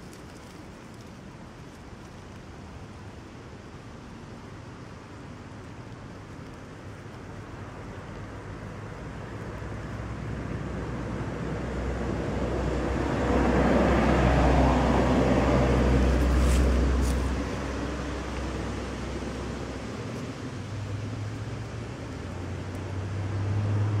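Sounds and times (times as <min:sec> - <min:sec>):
vehicle passing: 0:10.0 - 0:24.0.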